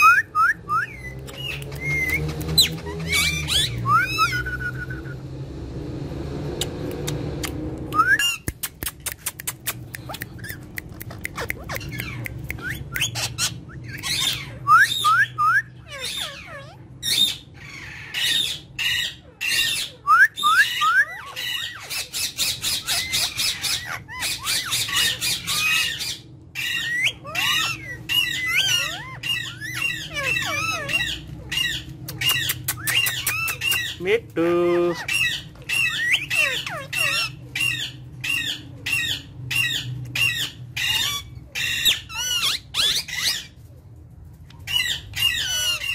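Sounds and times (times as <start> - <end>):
parakeet squawks: 0.0 - 4.5, 9.5 - 43.6, 44.5 - 45.9
parakeets calling: 0.0 - 5.2, 9.5 - 43.7, 44.4 - 45.9
short rising whistles: 0.0 - 5.3, 7.9 - 8.5
bird clicks: 8.4 - 13.2, 32.1 - 33.9.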